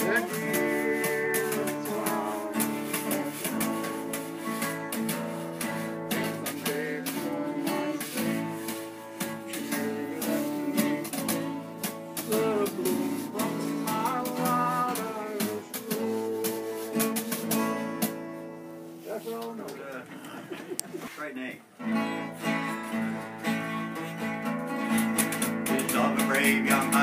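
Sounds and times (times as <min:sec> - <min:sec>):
cardboard box drummed with brushes: 0:00.0 - 0:18.4, 0:25.0 - 0:27.0
acoustic guitar strumming: 0:00.0 - 0:19.0, 0:21.8 - 0:27.0.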